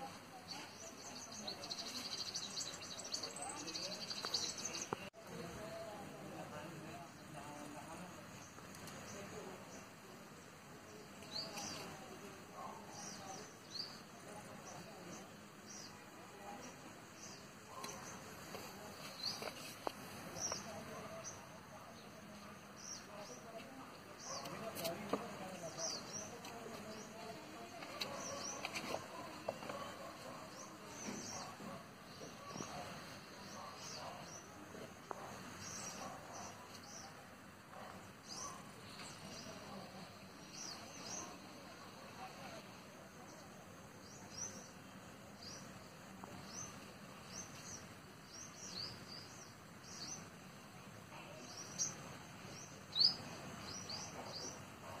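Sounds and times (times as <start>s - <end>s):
birds chirping: 0.0s - 55.0s
faint background hiss: 0.0s - 55.0s
murmur of distant voices: 0.0s - 55.0s.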